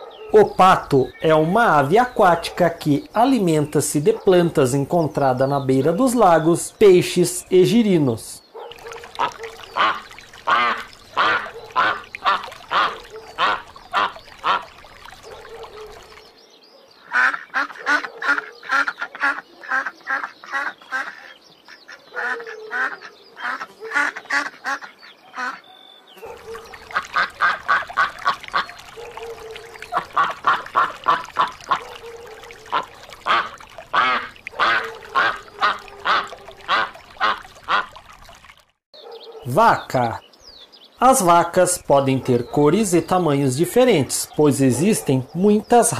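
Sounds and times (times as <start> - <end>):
ducks quacking: 8.6 - 16.2, 17.0 - 25.6, 26.2 - 38.0.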